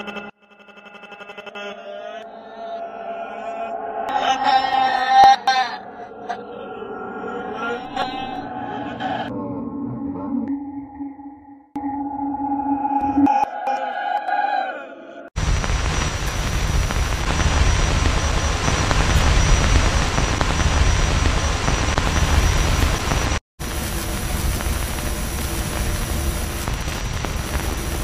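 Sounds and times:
faint high whine: 15.4 - 28.0
heavy low rumble: 15.4 - 28.0
loud static noise: 15.4 - 28.0.

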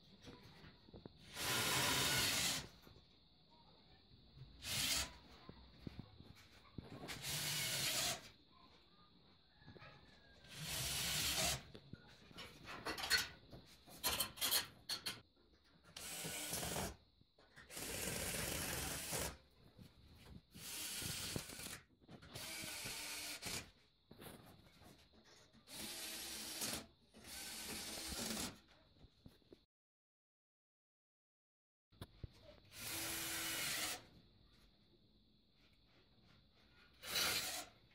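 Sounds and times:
electric drill drilling into steel: 1.2 - 2.7, 4.6 - 5.2, 7.1 - 8.3, 10.5 - 11.7, 16.0 - 17.0, 17.7 - 19.4, 20.6 - 23.6, 25.7 - 28.6, 32.7 - 34.0, 37.0 - 37.7.

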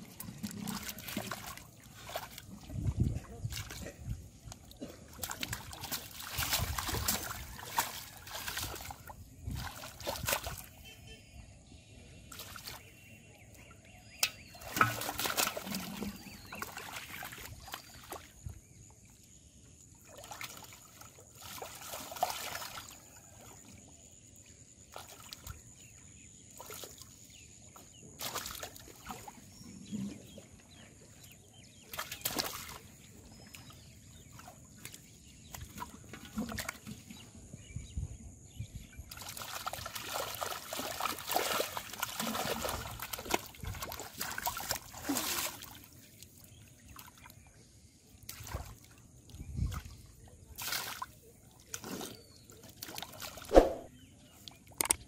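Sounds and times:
shallow water splashing: 0.0 - 11.1, 13.6 - 18.8, 20.0 - 23.7, 31.7 - 37.0, 39.1 - 47.5.

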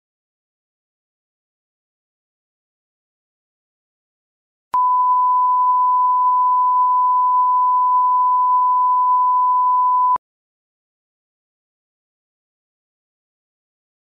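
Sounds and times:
steady test tone beep: 4.8 - 10.2.

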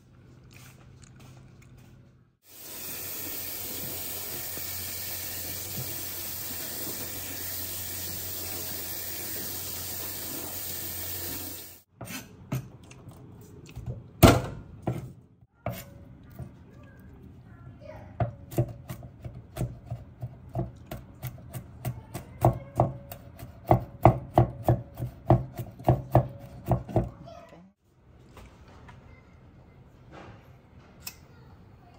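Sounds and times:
kitchen tap running: 2.5 - 11.9.

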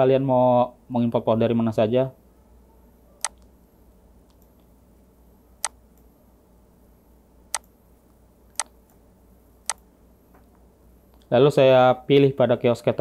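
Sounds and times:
faint room noise: 0.0 - 13.0
computer mouse clicks: 3.2 - 3.5, 4.3 - 4.7, 7.5 - 7.7, 9.6 - 9.8.

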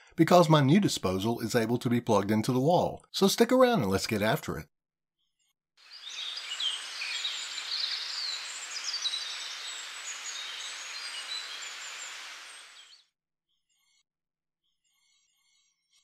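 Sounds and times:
outdoor ambience hiss: 5.8 - 13.0
birds chirping and calling: 5.9 - 12.9.

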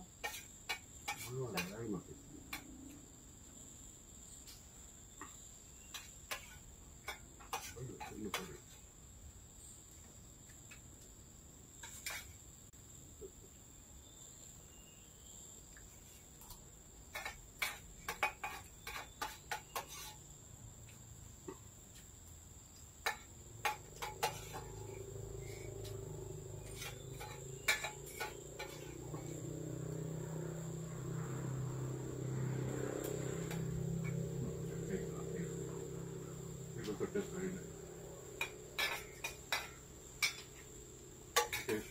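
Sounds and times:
spoons clinking on plates: 23.0 - 25.0, 26.6 - 29.3, 38.4 - 40.6, 41.3 - 41.9
high-pitched insect drone: 23.1 - 41.9.

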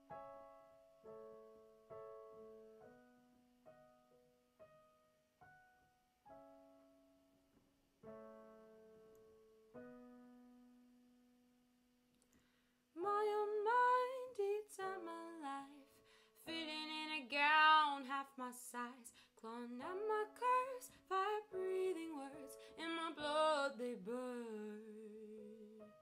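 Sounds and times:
piano chords: 0.0 - 12.1, 13.0 - 26.0
woman singing: 13.0 - 26.0.

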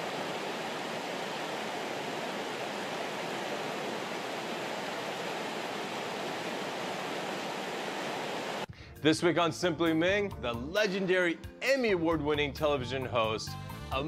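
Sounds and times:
water rushing over rocks: 0.0 - 8.7.

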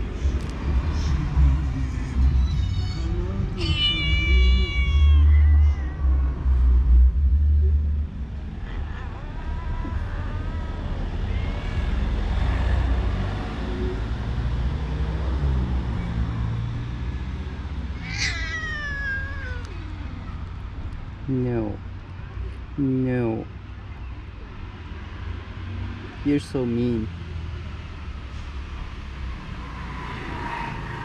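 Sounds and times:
cats meowing: 2.3 - 6.6, 8.5 - 12.9, 17.9 - 20.6.

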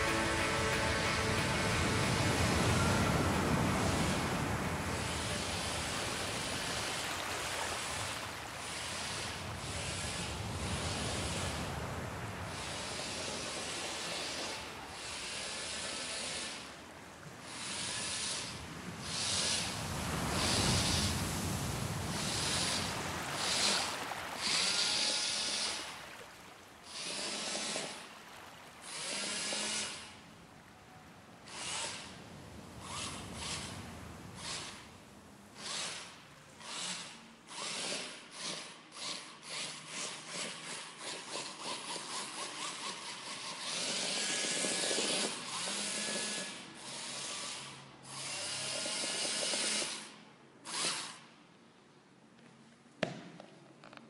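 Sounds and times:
small motors whirring: 12.5 - 16.8, 17.5 - 21.4, 22.1 - 25.9, 26.8 - 28.0, 28.8 - 30.2, 31.5 - 32.1, 32.8 - 33.8, 34.4 - 34.8, 35.6 - 51.2.

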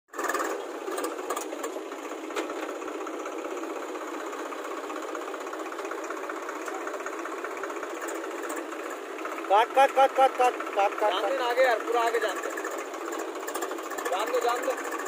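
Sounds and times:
tractor diesel engine running: 0.1 - 15.0.

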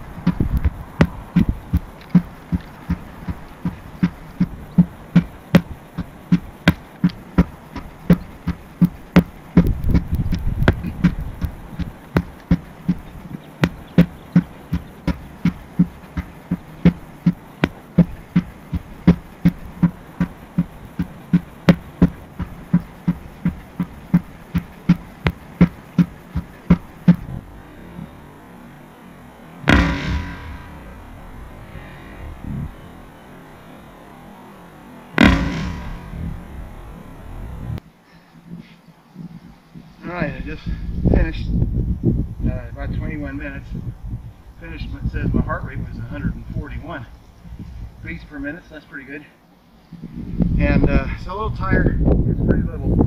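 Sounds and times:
sledgehammer thudding on tire: 0.0 - 27.4, 29.7 - 31.2, 35.2 - 36.4.

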